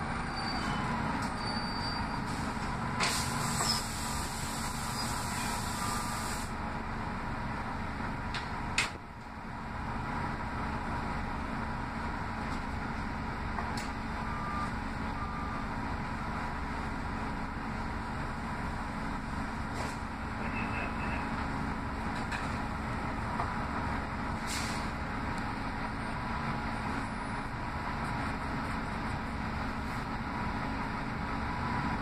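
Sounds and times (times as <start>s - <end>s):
bus engine and road noise: 0.0s - 32.0s
air hiss: 3.0s - 6.5s.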